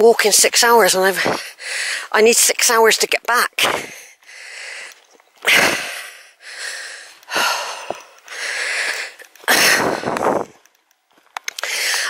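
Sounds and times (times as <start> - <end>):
person breathing hard: 1.2 - 2.1, 3.8 - 10.5, 11.6 - 12.0.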